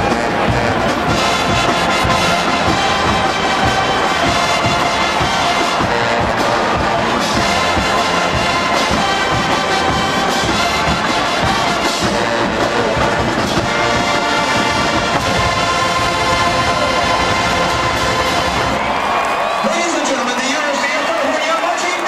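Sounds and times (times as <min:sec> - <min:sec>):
drums keeping steady beat: 0:00.0 - 0:19.3
brass melody: 0:00.0 - 0:19.4
marching band playing pop song: 0:00.0 - 0:21.8.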